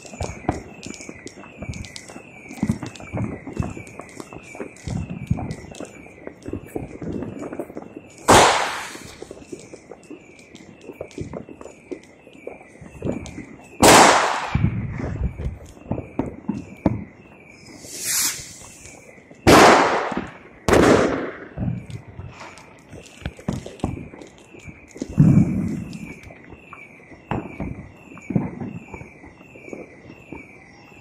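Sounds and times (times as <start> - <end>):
firework bangs echoing: 8.2 - 9.7, 13.8 - 17.0, 17.7 - 21.8
firecracker pops: 8.2 - 11.9, 13.0 - 17.1, 17.7 - 26.4, 27.3 - 29.8
firework hiss: 8.3 - 9.5, 17.6 - 20.3
high short chirp: 17.7 - 18.9.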